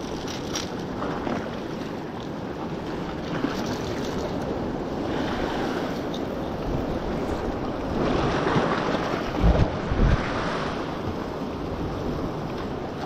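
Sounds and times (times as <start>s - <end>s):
waves breaking against rocks: 0.0s - 13.0s
wind buffeting microphone: 2.7s - 13.0s.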